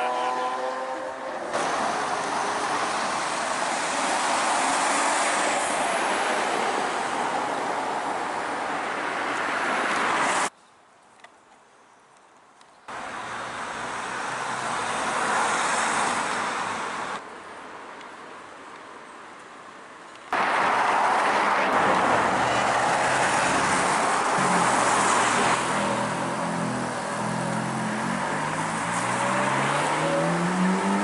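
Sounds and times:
quiet street noise: 0:00.0 - 0:31.0
car passing: 0:20.4 - 0:31.0.

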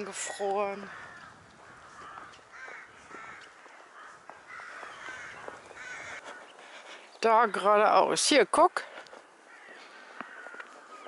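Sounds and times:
crows cawing: 0:00.4 - 0:07.1, 0:09.2 - 0:11.0.

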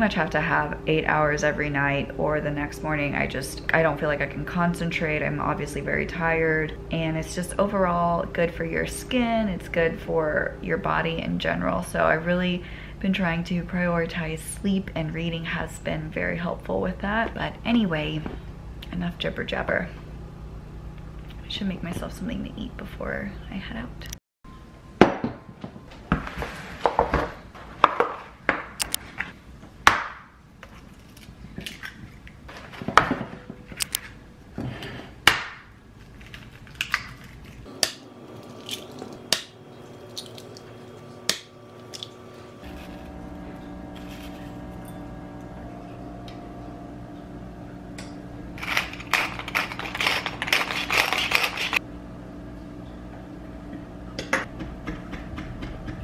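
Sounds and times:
steady low hum: 0:00.0 - 0:25.0, 0:30.3 - 0:56.0
pepper mill grinding: 0:36.1 - 0:45.0, 0:48.6 - 0:51.8.

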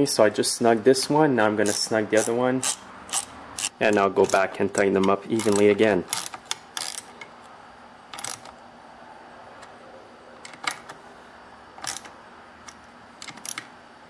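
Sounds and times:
metal socket clinking on nuts: 0:01.6 - 0:07.3.

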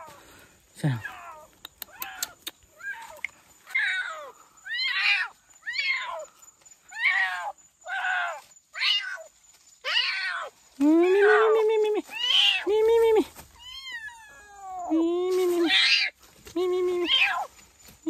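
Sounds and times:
sharp clicks: 0:01.5 - 0:03.3.

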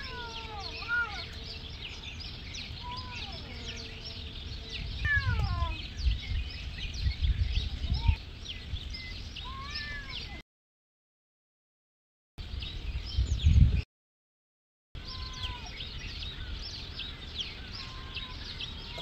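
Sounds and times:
cats yowling: 0:00.0 - 0:01.4, 0:02.8 - 0:03.7, 0:05.0 - 0:05.8, 0:09.4 - 0:10.4, 0:15.0 - 0:15.8, 0:17.7 - 0:19.0
small birds chirping: 0:00.0 - 0:10.4, 0:12.4 - 0:13.8, 0:15.0 - 0:19.0.

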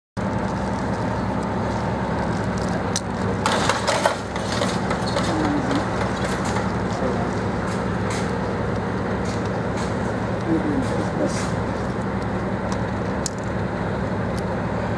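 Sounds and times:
crackling and clicks: 0:00.2 - 0:13.7
diesel locomotive engines droning: 0:00.2 - 0:14.9.

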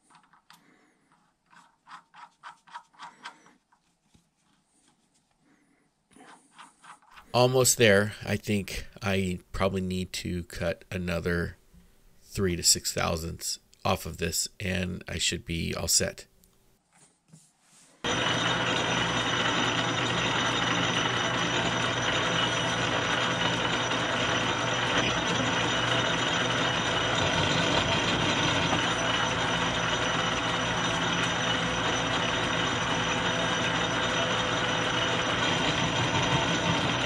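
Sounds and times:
metal lathe whirring: 0:18.1 - 0:37.0.

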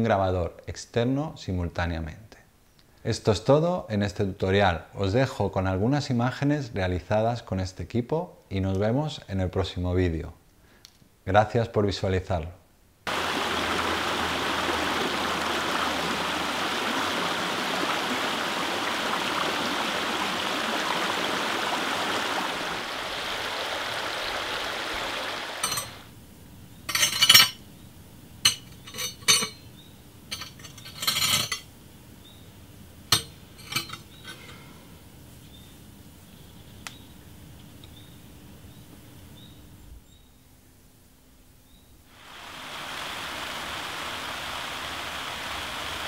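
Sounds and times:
stream rushing over rocks: 0:13.1 - 0:26.1, 0:42.2 - 0:46.0.

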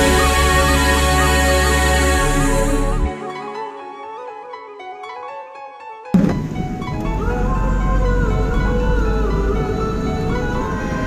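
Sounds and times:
music of slowly bending notes: 0:00.0 - 0:11.0
low steady rumble: 0:06.2 - 0:11.0.

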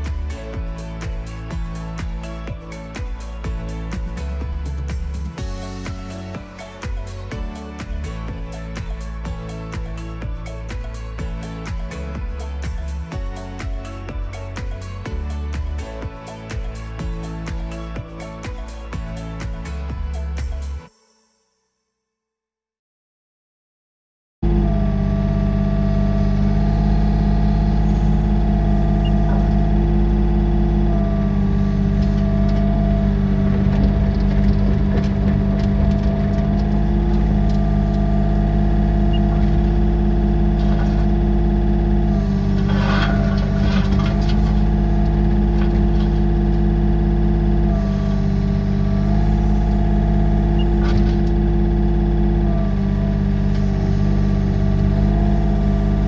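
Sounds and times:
diesel engine running: 0:00.0 - 0:20.8, 0:24.4 - 0:56.0
hydraulics whining: 0:24.4 - 0:56.0
bucket scraping in gravel: 0:42.5 - 0:44.7.

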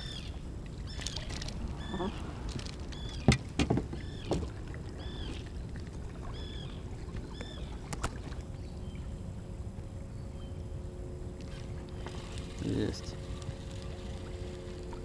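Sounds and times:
wind and water rumble: 0:00.0 - 0:15.0
sharp knocks in a boat: 0:03.1 - 0:04.6.

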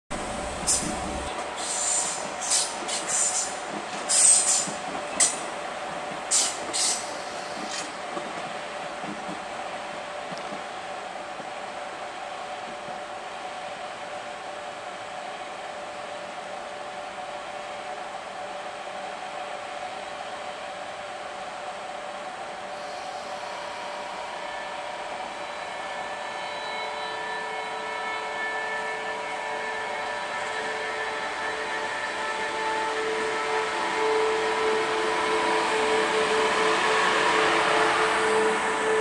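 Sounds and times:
traction equipment whine: 0:00.1 - 0:01.3
locomotive blower hiss: 0:00.2 - 0:04.7.

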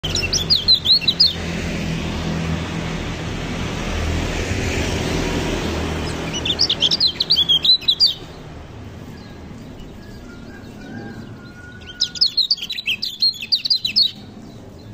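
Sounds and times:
bird twittering chirps: 0:00.0 - 0:01.5, 0:05.5 - 0:14.9.

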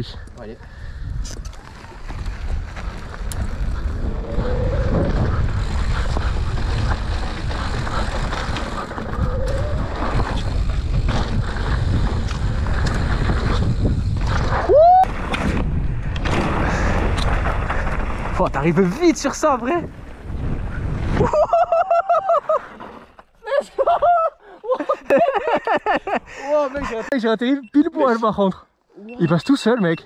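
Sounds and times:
bike tyres and frame rattling: 0:00.0 - 0:21.6
wind rushing over microphone: 0:00.7 - 0:18.6, 0:19.7 - 0:21.5.

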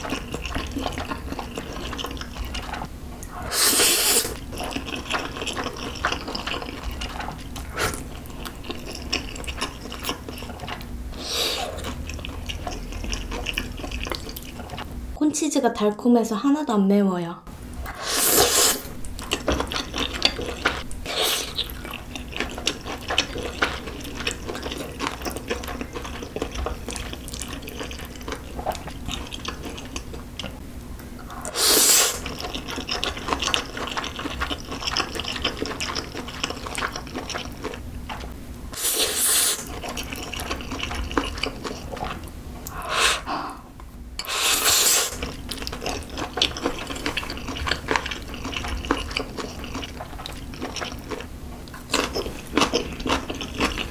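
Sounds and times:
wet chewing: 0:00.0 - 0:14.9, 0:17.8 - 0:30.6, 0:31.2 - 0:43.6, 0:44.2 - 0:53.9
slurping noodles: 0:03.3 - 0:04.8, 0:17.9 - 0:18.9, 0:31.3 - 0:32.3, 0:38.8 - 0:39.7, 0:42.7 - 0:43.6, 0:44.2 - 0:45.3.

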